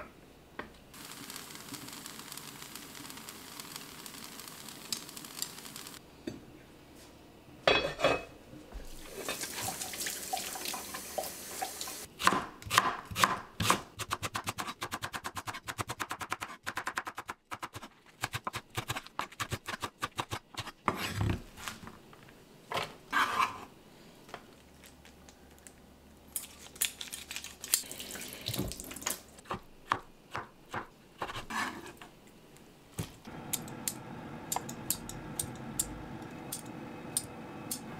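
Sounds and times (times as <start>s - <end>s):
dishes clattering: 7.7s - 8.3s
running tap water: 8.9s - 12.1s, 27.8s - 29.3s
knife chopping on wooden board: 12.2s - 14.5s.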